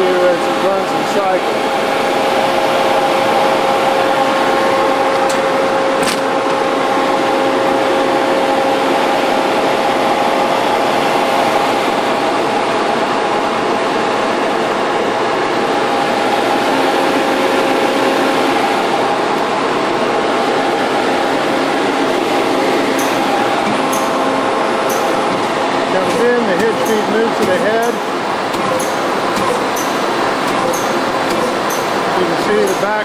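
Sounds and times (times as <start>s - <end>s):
press machine humming and whining: 0.0s - 33.0s.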